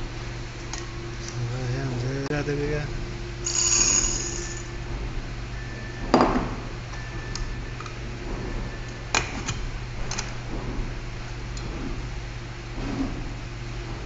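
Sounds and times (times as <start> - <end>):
electric grain grinder humming: 3.4 - 4.7.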